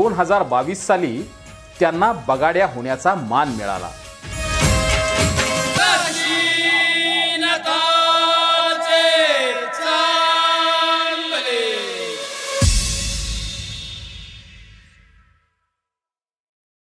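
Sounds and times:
voice singing devotional chant: 5.7s - 12.5s
drums: 12.4s - 15.2s.

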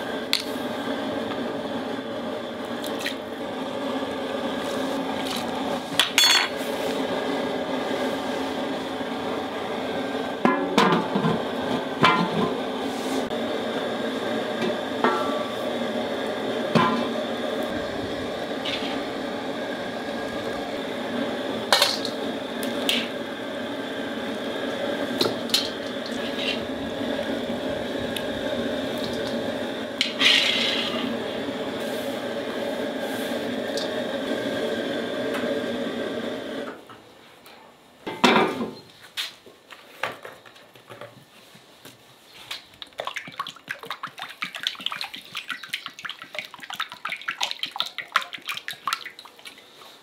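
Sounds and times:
broth boiling in pot: 0.0s - 36.9s, 42.2s - 50.0s.

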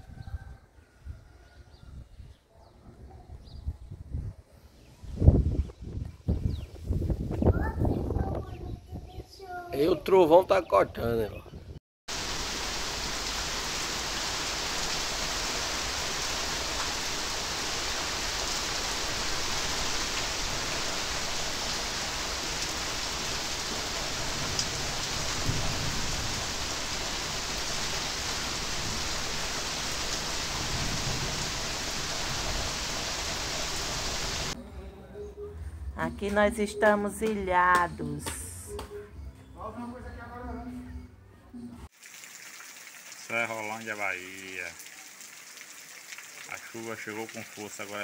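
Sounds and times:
heavy rain falling: 12.1s - 34.6s, 42.0s - 48.0s.

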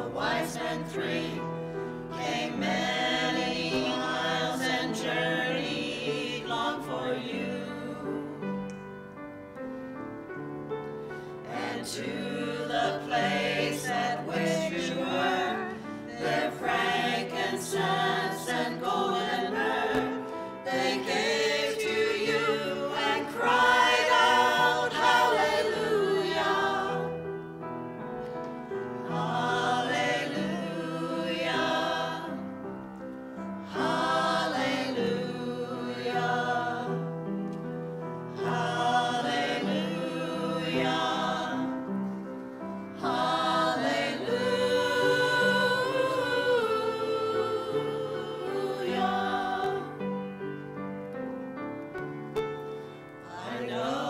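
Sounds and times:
choir singing in parts: 0.0s - 8.8s, 11.4s - 37.6s, 38.2s - 50.4s, 53.2s - 54.0s.

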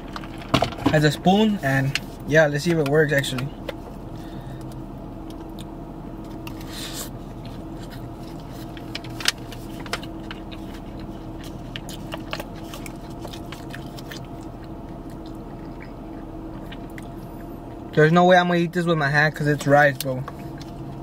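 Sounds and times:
car cabin hum: 0.0s - 21.0s
chewing: 6.5s - 18.0s.

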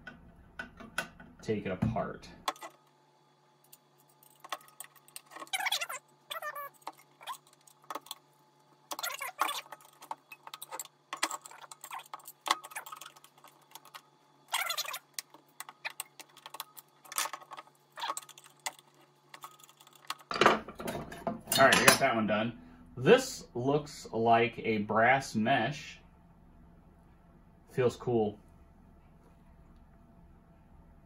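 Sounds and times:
small metal parts rattling: 8.9s - 21.9s.

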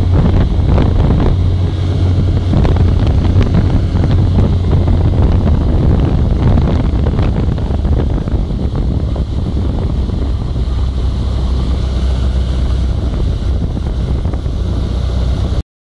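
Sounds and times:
outboard motor running: 0.0s - 15.6s
water rushing from wake: 0.0s - 15.6s
wind buffeting microphone: 0.0s - 15.6s.

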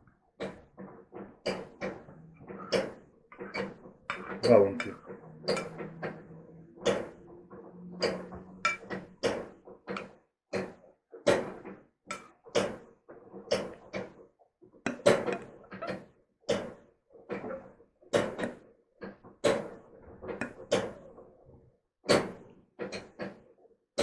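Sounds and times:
fork tapping and scraping plate: 2.6s - 6.2s, 8.0s - 10.1s, 12.1s - 12.8s, 14.9s - 15.6s, 20.4s - 20.9s.

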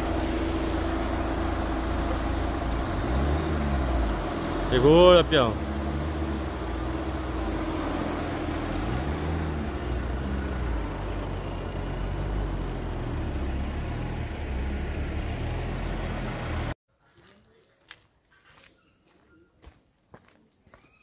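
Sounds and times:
vehicle engine running: 0.0s - 16.8s
road noise: 0.0s - 19.8s.

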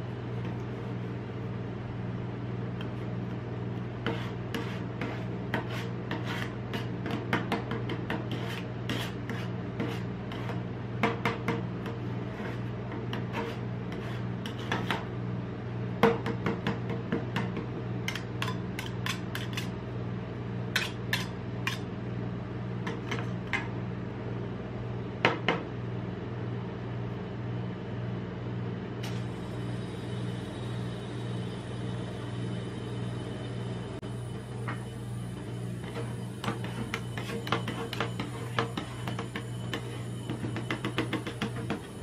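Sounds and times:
steady low hum: 0.0s - 42.0s
steel spatulas tapping and scraping: 4.0s - 15.0s, 17.4s - 19.7s, 20.8s - 21.9s, 35.8s - 41.9s.

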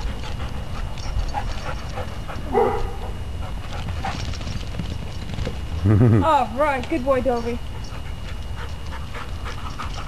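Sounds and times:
dog barking: 2.5s - 3.1s.

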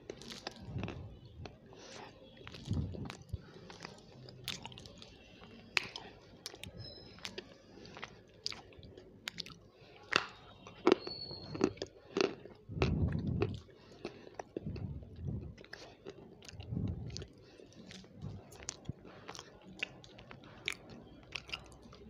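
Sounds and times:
mouth chewing food: 0.0s - 22.0s
low rumbling: 12.6s - 13.6s, 14.6s - 15.7s, 16.5s - 17.3s.

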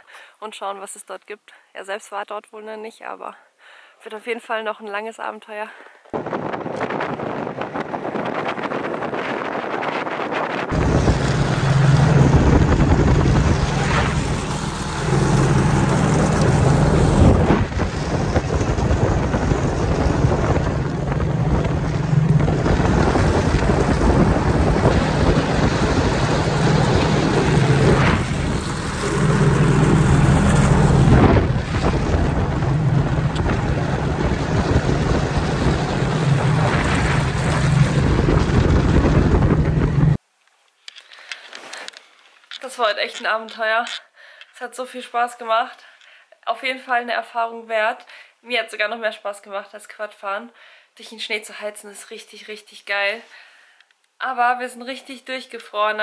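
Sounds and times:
wind buffeting microphone: 6.1s - 40.2s
snowmobile engine drone: 6.2s - 40.2s.

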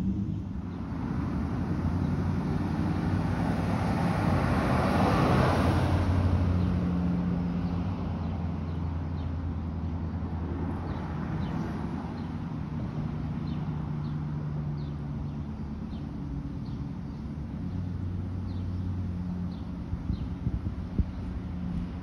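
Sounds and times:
low engine hum: 0.0s - 22.0s
vehicle passing by: 0.0s - 22.0s.

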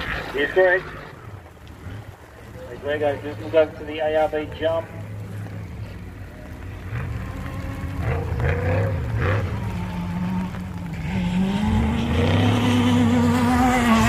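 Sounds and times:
race car engine revving: 0.0s - 14.0s.

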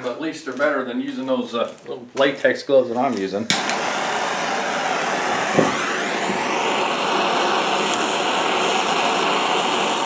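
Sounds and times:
propane torch hissing: 3.5s - 10.0s.

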